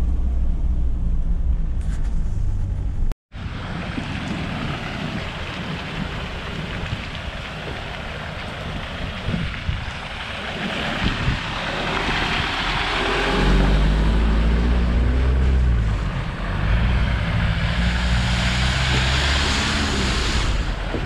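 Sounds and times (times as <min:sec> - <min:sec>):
vehicle engine labouring: 0:00.0 - 0:21.0
tyres hissing through mud: 0:03.5 - 0:21.0.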